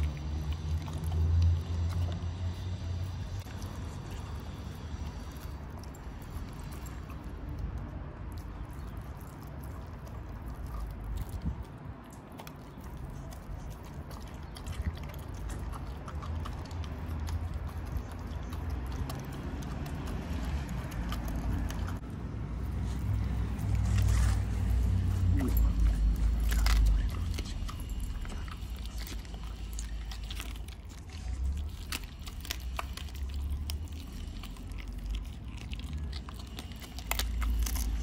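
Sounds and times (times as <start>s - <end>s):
bones cracking: 0.0s - 38.0s
dog chewing and crunching: 0.0s - 38.0s
steady low rumble: 0.0s - 38.0s.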